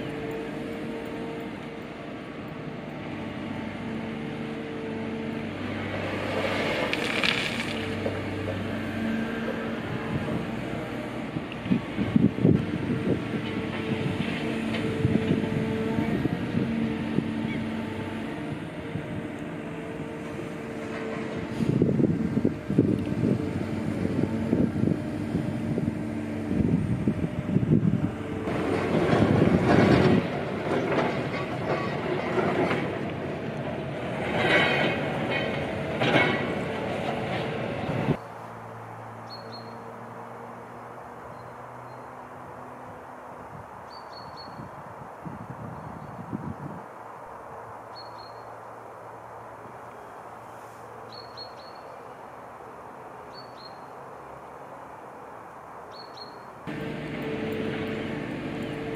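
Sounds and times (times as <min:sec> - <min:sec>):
construction site noise: 0:00.0 - 0:44.2, 0:49.0 - 0:58.9
city noise: 0:00.0 - 0:58.9
steady mechanical hum: 0:56.6 - 0:58.9.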